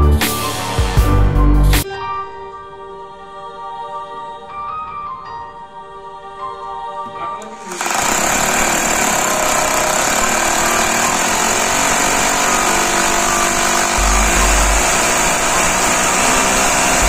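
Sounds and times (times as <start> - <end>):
hammer drill boring into concrete: 7.4 - 17.0.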